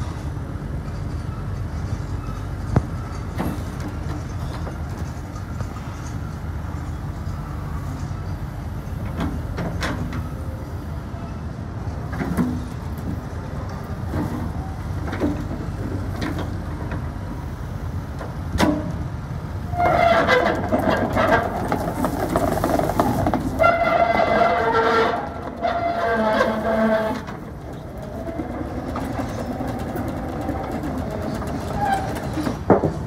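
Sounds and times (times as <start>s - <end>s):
excavator diesel engine running: 0.0s - 33.0s
hydraulics working: 11.8s - 33.0s.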